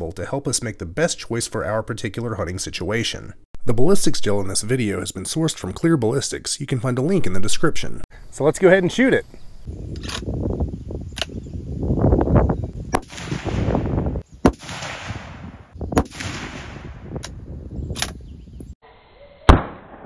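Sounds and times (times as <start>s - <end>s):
rifle shots: 13.0s - 17.1s.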